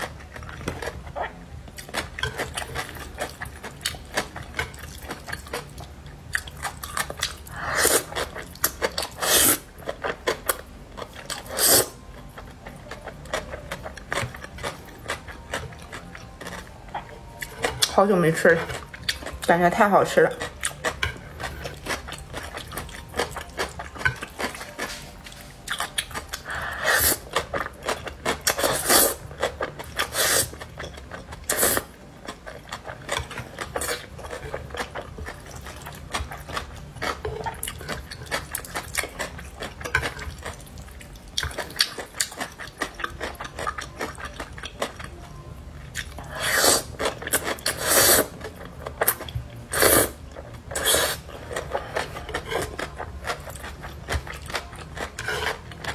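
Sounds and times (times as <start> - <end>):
wet chewing: 0.0 - 19.6, 20.2 - 45.2, 45.8 - 55.9
noodle slurping: 9.2 - 9.6, 46.3 - 48.4, 49.7 - 51.2.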